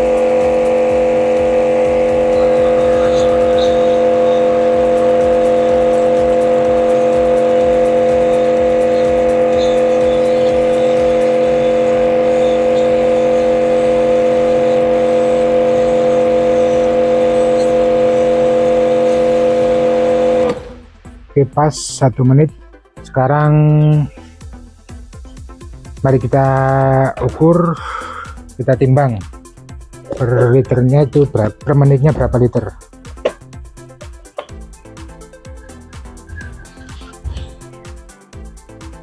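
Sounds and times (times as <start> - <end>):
pressure washer humming: 0.0 - 20.8.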